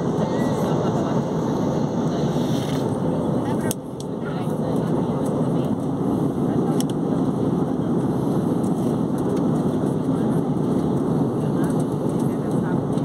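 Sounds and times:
jet airliner cabin noise: 0.0 - 13.0.

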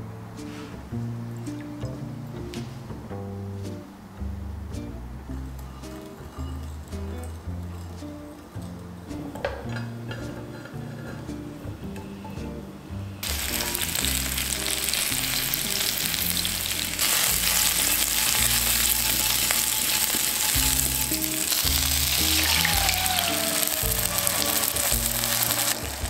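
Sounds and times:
potatoes sizzling in hot oil: 13.2 - 26.0.

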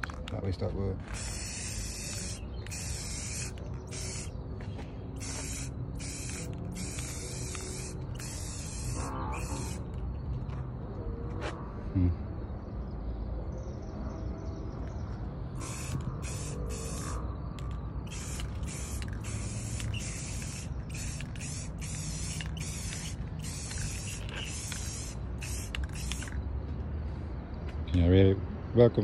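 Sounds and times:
spray paint can hissing: 1.0 - 4.4, 5.2 - 10.0, 15.6 - 26.4.

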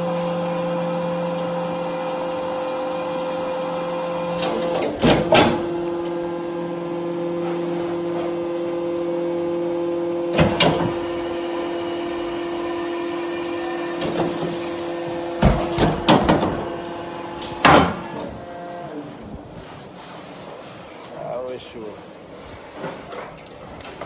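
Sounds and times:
hydraulic power unit hum: 0.0 - 24.0.

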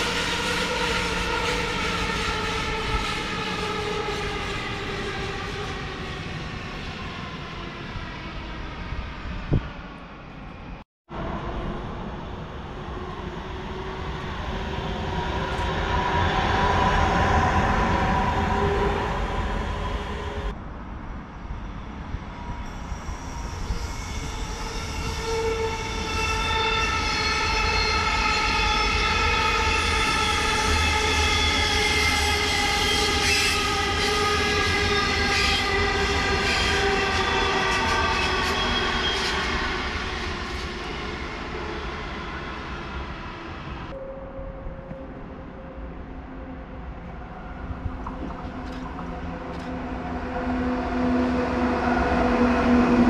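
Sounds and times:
train rumble: 11.1 - 53.0.

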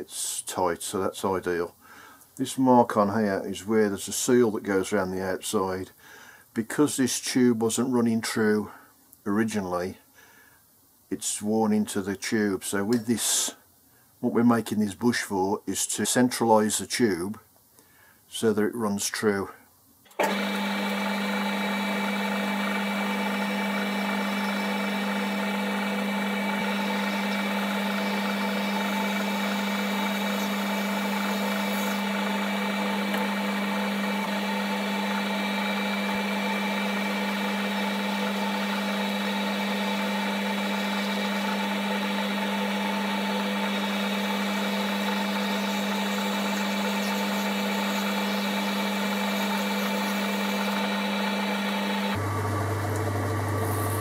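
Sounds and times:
boring bar cutting nylon: 20.2 - 54.0
metal lathe humming: 20.2 - 54.0.

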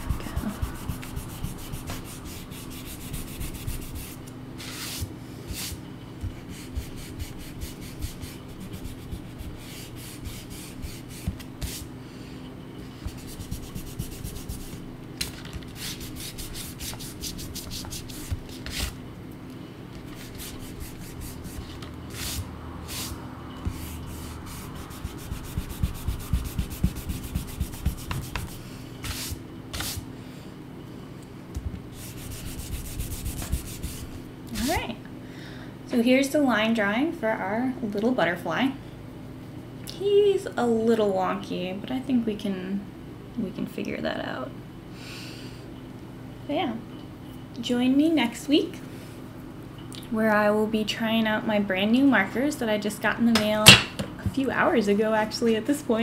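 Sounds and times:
eraser rubbing on paper: 0.0 - 11.9, 13.0 - 14.8, 15.8 - 19.0, 20.2 - 30.0, 32.0 - 34.7.

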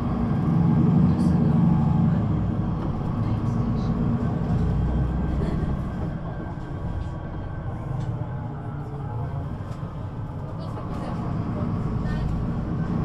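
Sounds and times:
bus engine rumble: 0.0 - 13.0.

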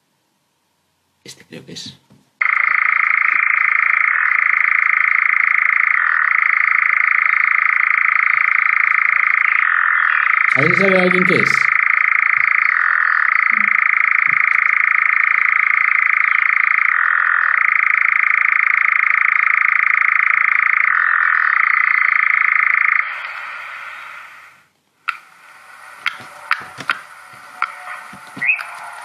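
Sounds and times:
bird churring trill: 7.2 - 19.3, 19.9 - 23.2, 27.6 - 28.8.

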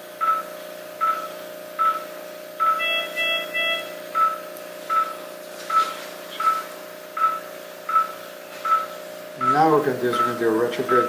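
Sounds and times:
steady hum: 0.0 - 11.0
pulse oximeter beeping: 0.2 - 11.0
quick higher beeps: 2.6 - 6.6.

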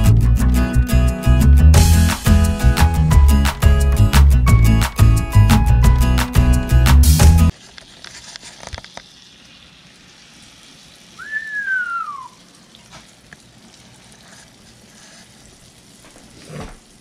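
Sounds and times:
food sizzling in a frying pan: 7.5 - 12.2
whistle rising and sliding down: 11.2 - 12.4.

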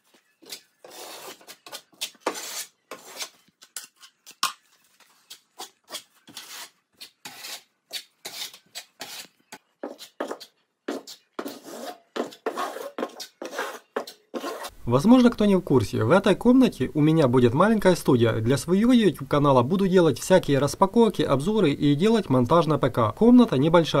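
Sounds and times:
putty knife scraping drywall: 0.4 - 3.9, 5.6 - 14.7.

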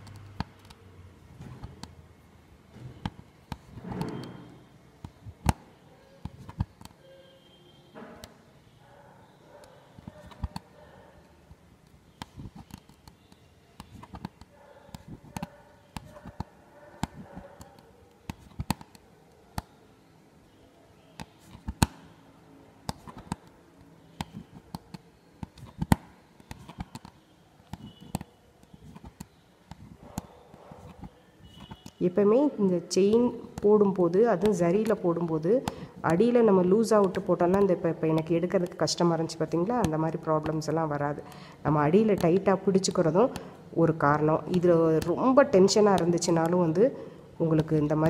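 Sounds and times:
hook needle ticking through fabric: 33.0 - 41.1, 44.3 - 46.8.

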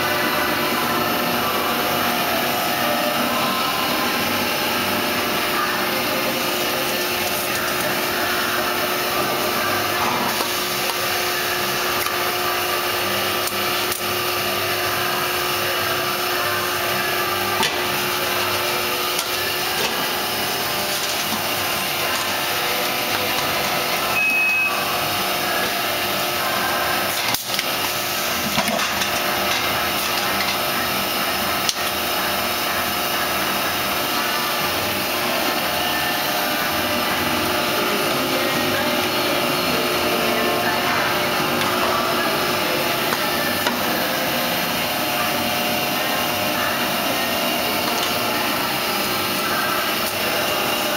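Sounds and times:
filling line machinery running: 0.0 - 50.9
short beep: 24.1 - 24.8.

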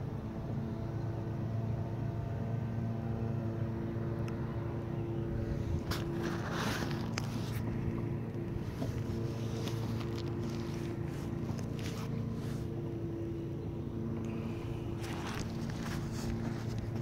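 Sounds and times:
motor humming: 4.2 - 17.0.

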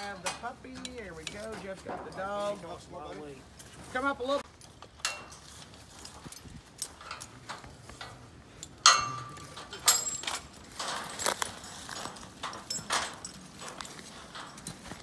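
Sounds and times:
dry leaves rustling and crunching: 9.4 - 15.0.

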